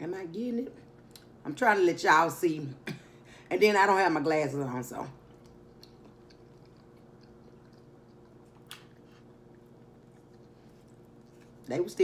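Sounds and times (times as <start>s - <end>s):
low steady hum: 0.0s - 12.0s
person chewing food: 5.2s - 11.7s.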